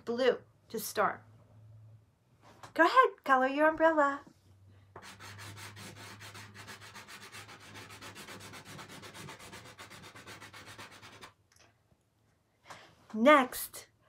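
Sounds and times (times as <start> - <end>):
chalk scribbling on chalkboard: 5.0 - 11.4.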